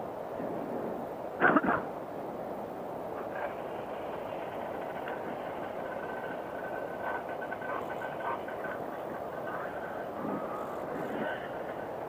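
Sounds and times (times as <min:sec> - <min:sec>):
thin high whine: 0:03.1 - 0:12.0
snowmobile running: 0:03.2 - 0:12.0.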